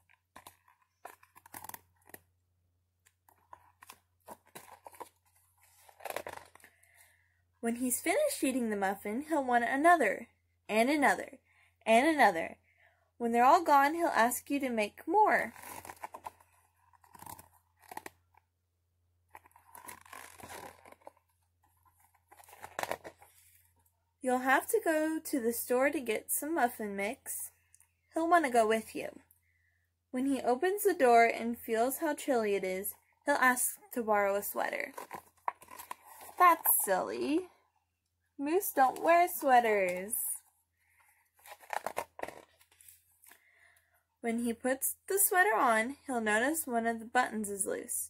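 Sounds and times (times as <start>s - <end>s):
book pages rustling: 0.0s - 2.4s, 3.0s - 6.9s, 15.4s - 18.5s, 19.3s - 23.8s, 34.6s - 37.5s, 40.8s - 43.4s.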